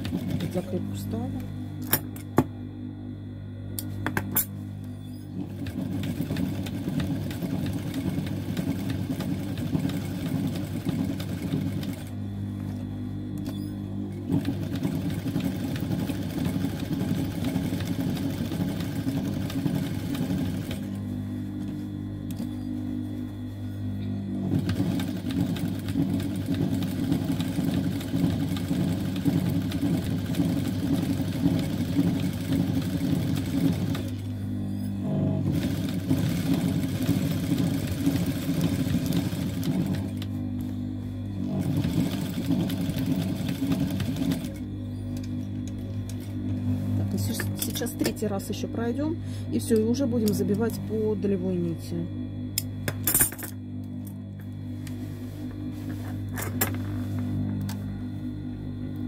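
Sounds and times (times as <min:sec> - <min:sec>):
sewing machine motor humming: 0:00.0 - 0:01.3, 0:04.8 - 0:12.2, 0:13.4 - 0:22.5, 0:24.2 - 0:48.2
sewing machine stitching: 0:05.4 - 0:12.1, 0:14.2 - 0:20.9, 0:24.5 - 0:34.3, 0:35.0 - 0:40.3, 0:41.4 - 0:44.6.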